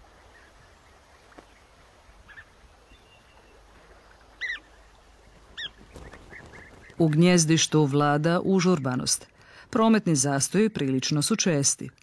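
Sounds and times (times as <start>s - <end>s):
bird calls rising and falling: 2.2s - 7.0s.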